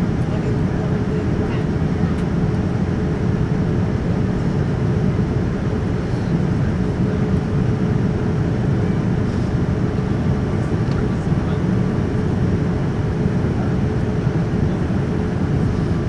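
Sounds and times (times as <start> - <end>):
airliner cabin rumble: 0.0 - 16.0.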